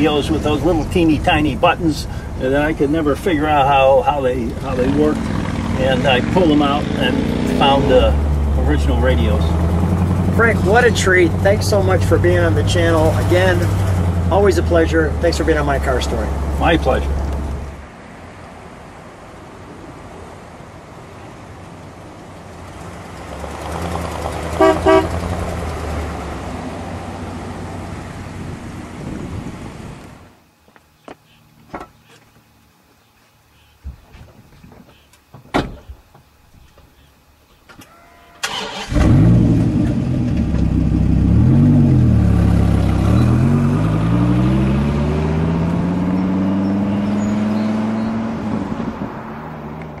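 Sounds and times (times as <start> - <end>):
car engine starting and revving: 4.3 - 17.8, 22.5 - 30.2, 38.4 - 50.0
car accelerating away: 4.5 - 17.7, 22.6 - 29.0, 38.4 - 50.0
car horn toots: 24.5 - 25.2
car engine driving past: 38.4 - 50.0.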